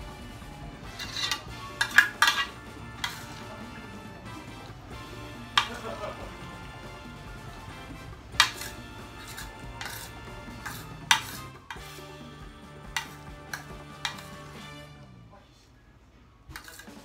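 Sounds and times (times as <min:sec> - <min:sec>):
soft background music: 0:00.0 - 0:17.0
metal spoon clinking on platter: 0:00.8 - 0:03.4, 0:08.4 - 0:12.0, 0:12.9 - 0:14.6, 0:16.5 - 0:17.0.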